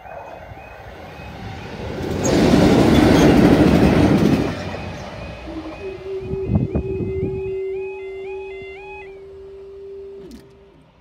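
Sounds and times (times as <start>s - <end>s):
train wheels on rail: 0.0s - 8.2s
diesel locomotive engines: 0.0s - 11.0s.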